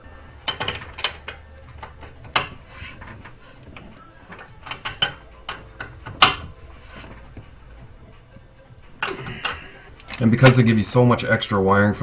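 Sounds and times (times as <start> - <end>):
wrench clicking and clinking: 0.5 - 1.4, 4.3 - 6.4.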